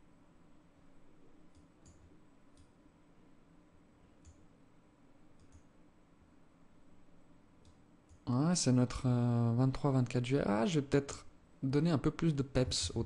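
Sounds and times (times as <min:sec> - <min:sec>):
faint computer mouse clicks: 0:01.5 - 0:02.7, 0:04.2 - 0:04.4, 0:05.4 - 0:05.7.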